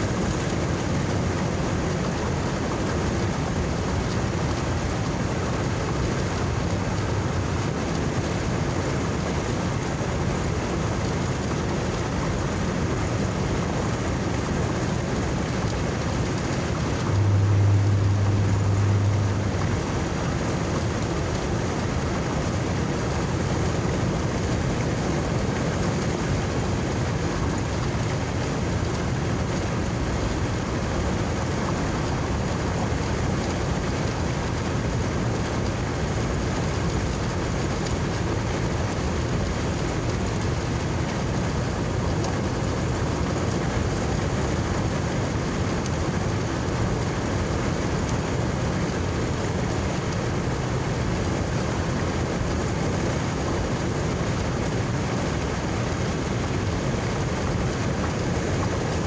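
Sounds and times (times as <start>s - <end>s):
car engine and road noise: 16.4s - 21.4s.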